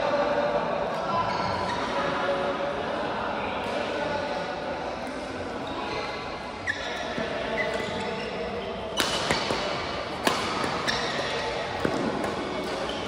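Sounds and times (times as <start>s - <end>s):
shoe squeaks on court floor: 5.6s - 13.0s
racket hitting shuttlecock: 8.9s - 13.0s.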